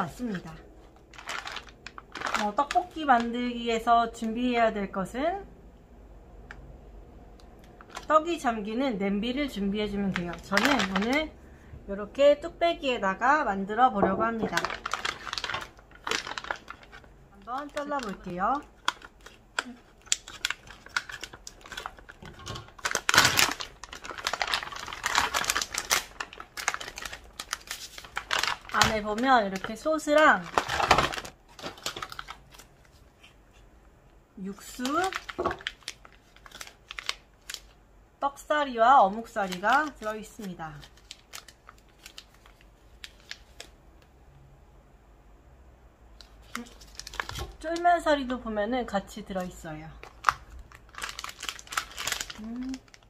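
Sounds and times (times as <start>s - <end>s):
plastic food pack crackling: 0.0s - 4.2s, 7.6s - 8.3s, 9.6s - 11.4s, 14.2s - 33.4s, 34.5s - 37.8s, 39.0s - 43.8s, 46.2s - 48.4s, 49.2s - 53.0s
foil crinkling: 0.1s - 3.4s, 7.7s - 8.1s, 9.9s - 11.3s, 14.3s - 33.4s, 34.6s - 37.8s, 39.0s - 43.8s, 46.2s - 48.3s, 49.4s - 53.0s.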